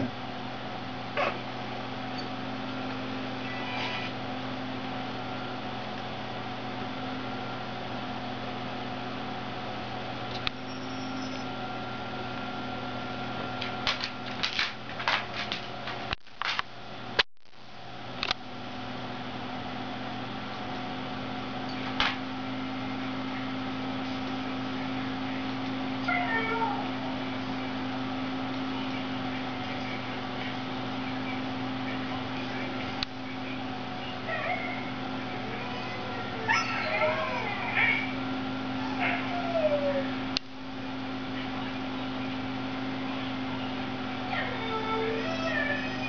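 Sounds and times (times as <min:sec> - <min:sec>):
steady electrical hum: 0:00.0 - 0:46.0
dog whining: 0:01.2 - 0:01.4, 0:03.3 - 0:04.2, 0:10.6 - 0:11.6, 0:26.0 - 0:27.1, 0:34.0 - 0:40.2, 0:44.2 - 0:46.0.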